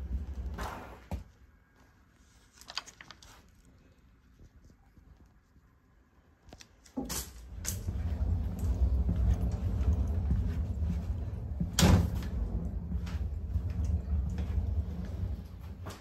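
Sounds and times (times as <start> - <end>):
low train rumble: 0.0 - 1.0, 7.4 - 16.0
footsteps in train corridor: 0.0 - 2.4, 6.5 - 16.0.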